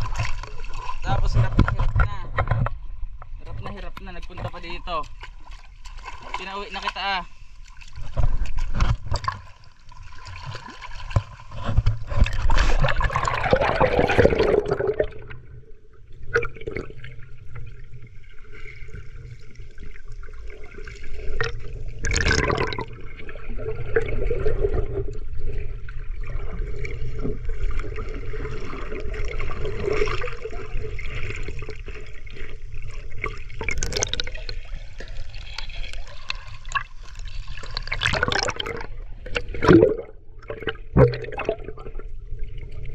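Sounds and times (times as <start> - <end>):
rush of water: 0.0 - 2.6
water sloshing and gurgling: 0.0 - 42.9
water splashes: 0.0 - 42.9
muffled bubbly underwater sound: 7.8 - 42.9.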